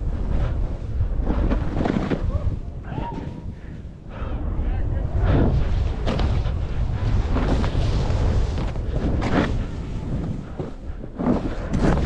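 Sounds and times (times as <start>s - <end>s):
wind buffeting microphone: 0.0s - 12.0s
skis swishing through snow: 6.1s - 12.0s.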